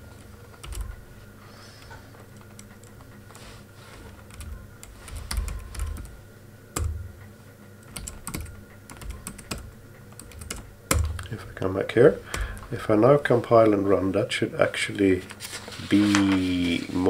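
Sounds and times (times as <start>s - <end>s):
typing on computer keyboard: 0.6s - 1.0s, 4.2s - 6.1s, 7.8s - 11.3s.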